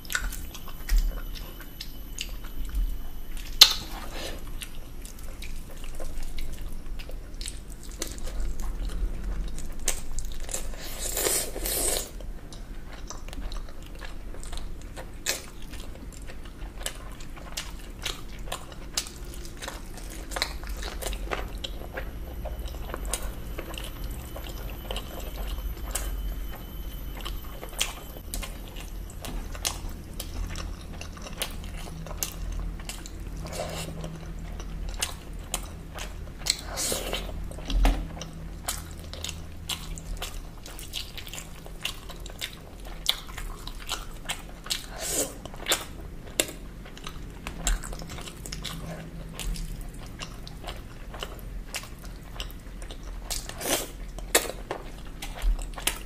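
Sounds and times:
chewing and wet smacks: 0.0 - 56.0.

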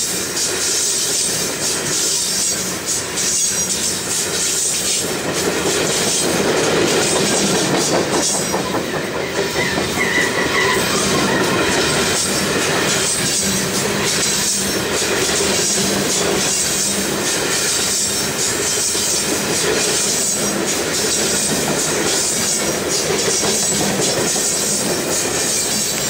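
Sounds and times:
train wheels rumbling on rails: 0.0 - 26.0
faint wheel squeal: 0.6 - 5.0, 8.2 - 14.8.

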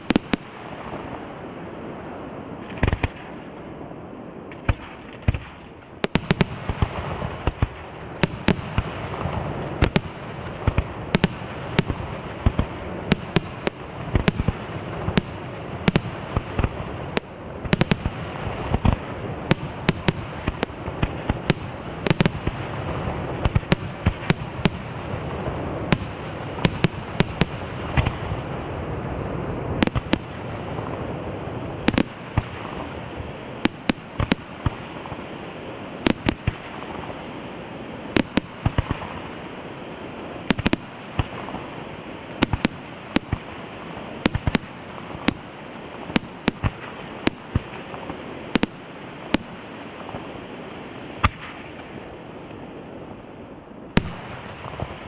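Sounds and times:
crackle of bursting fireworks: 0.0 - 55.0.

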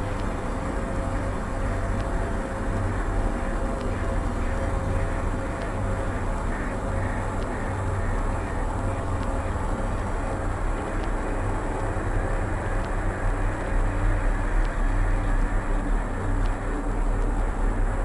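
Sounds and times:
experimental ambient noise drone: 0.0 - 18.0
faint clicks: 3.8 - 5.8, 6.5 - 12.0, 12.7 - 17.6.

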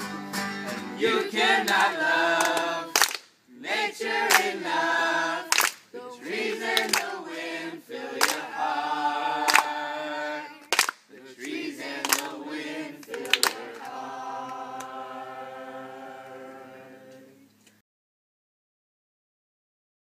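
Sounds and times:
boys singing together: 1.0 - 3.0, 3.6 - 17.3
hand claps: 1.7 - 3.3, 4.3 - 4.6, 5.5 - 5.9, 6.7 - 7.2, 8.2 - 8.4, 9.5 - 9.7, 10.6 - 12.4, 13.0 - 15.0.

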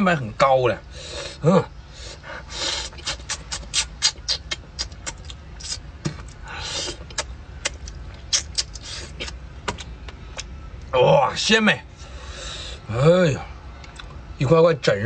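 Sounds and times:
man chewing and lip-smacking: 2.5 - 10.9, 13.8 - 14.1.

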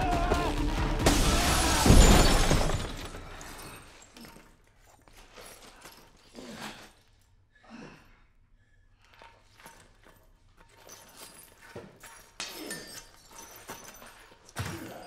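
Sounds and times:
glass crash: 1.0 - 4.4.

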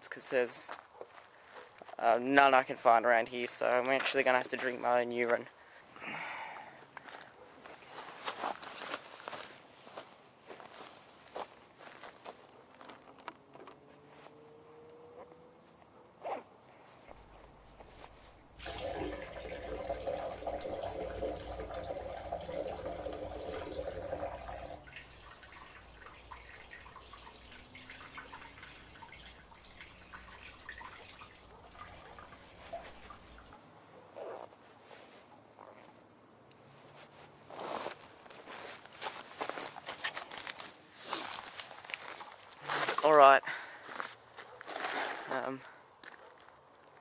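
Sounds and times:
faint drips and trickles: 18.5 - 33.7, 37.0 - 44.0
urine pouring into a container: 18.6 - 33.4.

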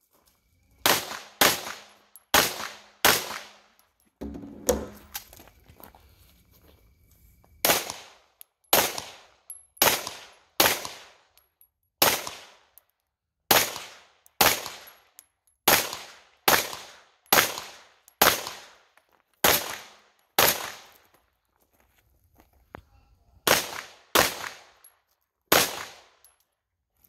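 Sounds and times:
pistol shots with echo: 0.8 - 3.7, 7.6 - 11.2, 13.5 - 14.9, 23.5 - 24.7, 25.5 - 26.2.

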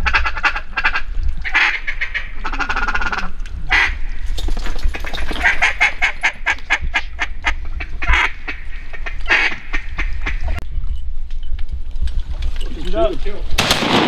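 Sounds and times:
duck quacking: 0.0 - 4.0, 5.4 - 10.6.

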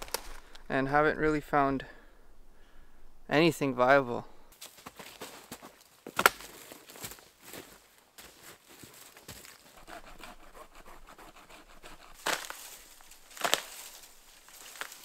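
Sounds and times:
dead wood snapping: 6.2 - 6.5, 12.1 - 15.0
rustling through leaf litter: 12.2 - 15.0.

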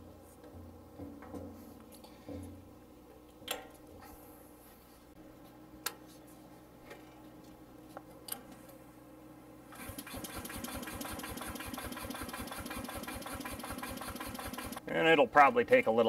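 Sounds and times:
engine starter cranking: 9.8 - 14.8.

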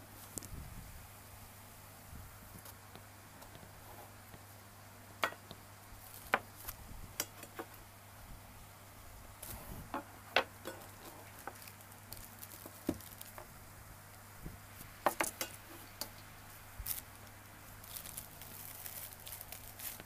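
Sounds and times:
plastic bag crinkling: 10.7 - 13.6, 16.8 - 20.0.

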